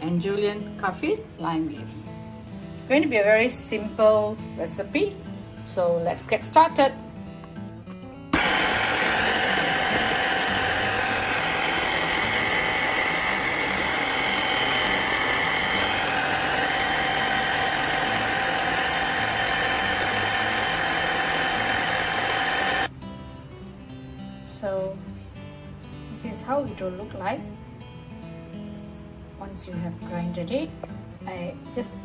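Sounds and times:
food processor grinding: 8.4s - 22.9s.

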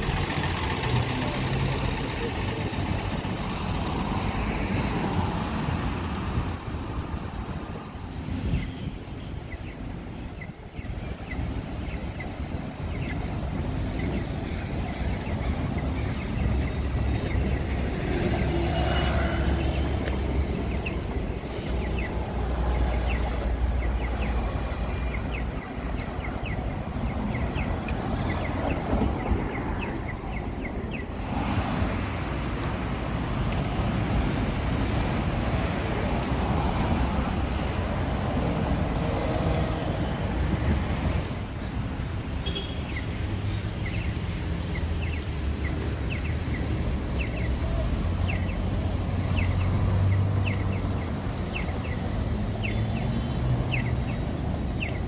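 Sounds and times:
cars and buses passing: 0.0s - 55.0s
wind on microphone: 5.5s - 23.6s.

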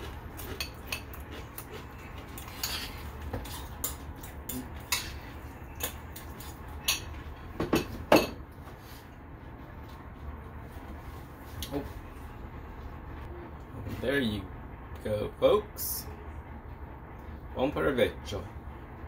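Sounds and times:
fork scraping ceramic bowl: 0.0s - 4.0s.

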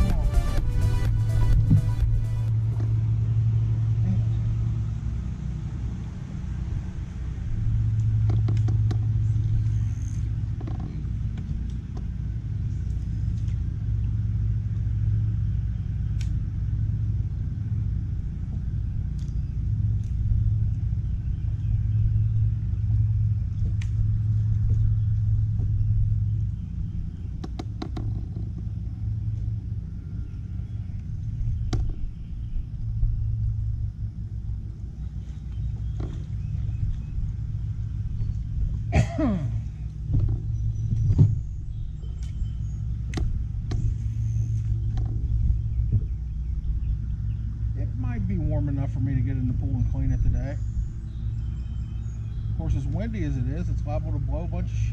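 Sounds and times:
wind buffeting microphone: 40.0s - 44.1s, 44.7s - 48.6s.

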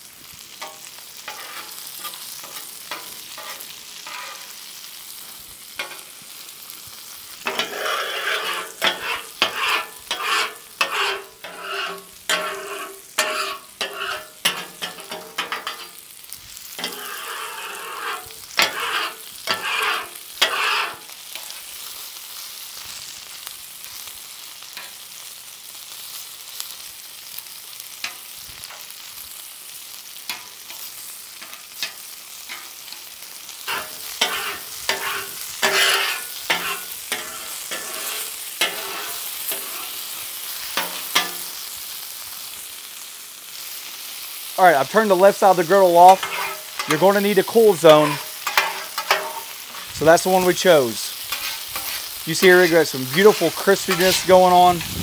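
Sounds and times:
chicken sizzling on griddle: 0.0s - 55.0s
metal spatula scraping griddle: 0.3s - 6.3s, 7.3s - 21.8s, 30.2s - 41.7s, 44.8s - 55.0s.

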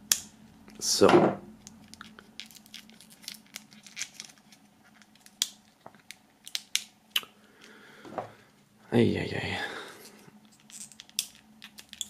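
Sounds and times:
paper leaflet crinkling: 1.8s - 5.9s.

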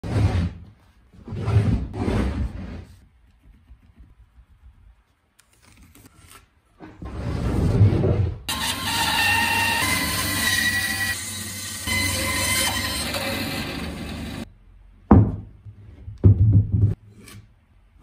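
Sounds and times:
wood block scraping across workbench: 0.0s - 3.0s
bandsaw running: 8.5s - 14.4s.

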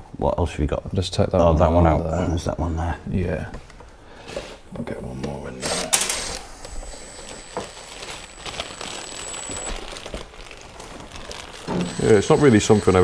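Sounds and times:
faint plastic crinkling: 6.1s - 13.0s.

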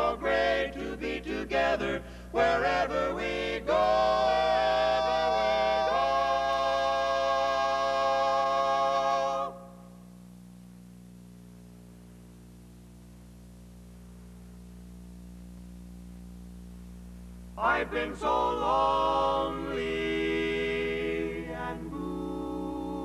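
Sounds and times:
male quartet singing: 0.0s - 9.6s, 17.6s - 23.0s
low electrical hum: 0.0s - 23.0s.

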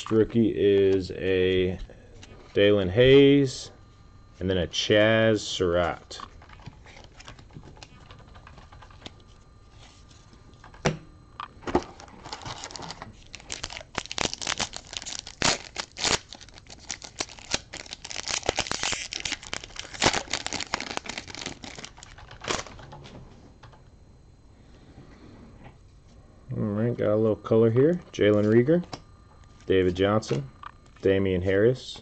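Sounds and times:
foil card pack tearing and crinkling: 11.8s - 22.8s.

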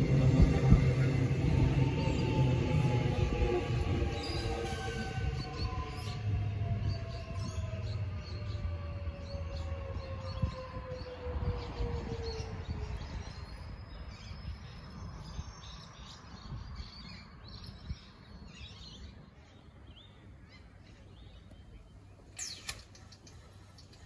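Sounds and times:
electric train rumble: 0.0s - 12.9s.

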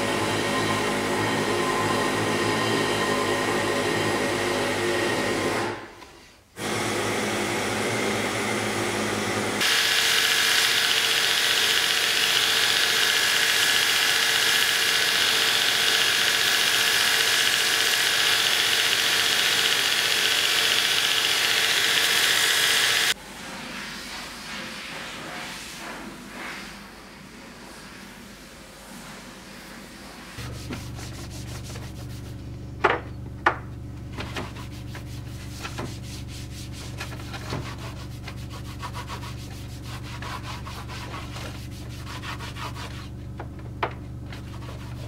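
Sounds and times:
belt grinder hissing: 6.6s - 23.2s.

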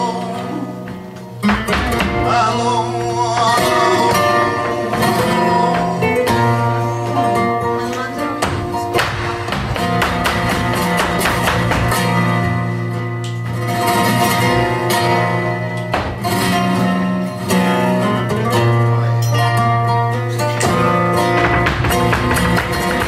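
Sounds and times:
cajon: 0.0s - 23.0s
flamenco guitars playing: 0.0s - 23.0s
heeled footwork strikes: 0.9s - 2.3s, 8.4s - 12.4s, 21.2s - 23.0s.

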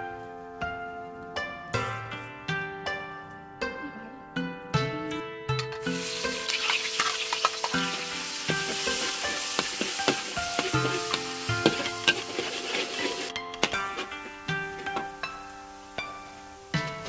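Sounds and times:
metal spatula scraping wok: 5.8s - 15.2s
food sizzling in hot oil: 5.8s - 17.0s.

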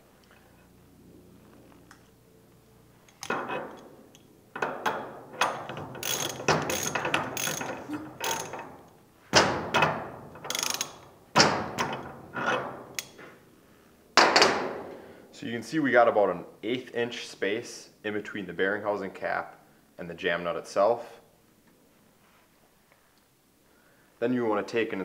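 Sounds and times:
ratchet wrench pawl clicking: 5.5s - 8.6s, 10.5s - 11.0s.

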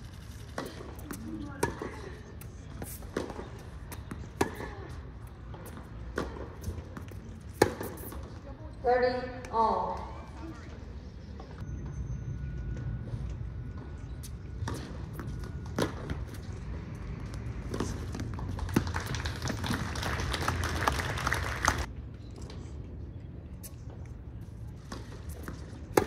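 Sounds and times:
tennis ball hit and bouncing: 0.6s - 8.3s, 24.9s - 26.0s.

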